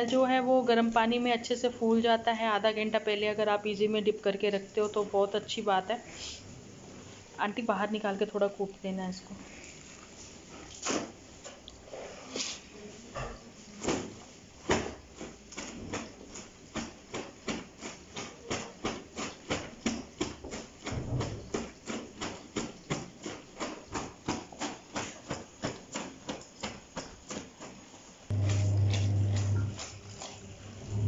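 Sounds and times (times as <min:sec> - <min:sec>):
wet clothes slapping on stone: 0:13.8 - 0:31.0.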